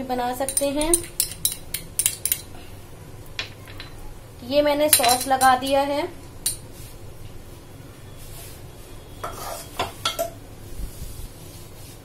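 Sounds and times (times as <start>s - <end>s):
spoon and dishes clinking: 4.9s - 5.7s, 9.2s - 10.4s.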